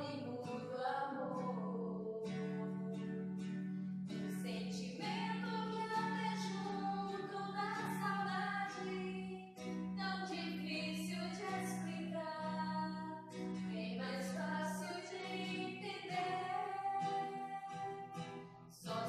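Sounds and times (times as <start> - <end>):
women singing together: 0.0 - 3.0, 4.3 - 13.1, 13.7 - 19.0
acoustic guitar: 0.0 - 19.0.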